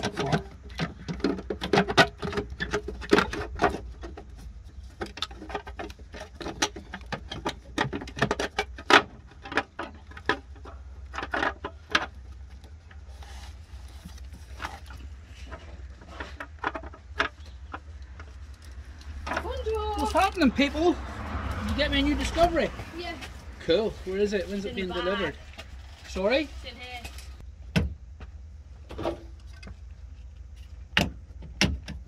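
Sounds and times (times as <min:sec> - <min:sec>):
tools and metal parts knocking: 0:00.0 - 0:12.9, 0:14.5 - 0:20.3.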